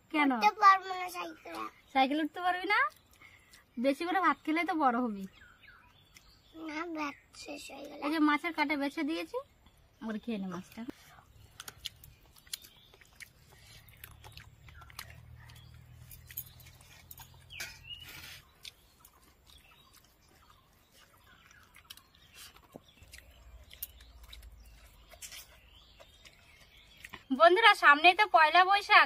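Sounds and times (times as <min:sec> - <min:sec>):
birds chirping: 0:00.0 - 0:29.0
people chewing: 0:02.9 - 0:03.8, 0:05.5 - 0:08.0, 0:10.5 - 0:28.2.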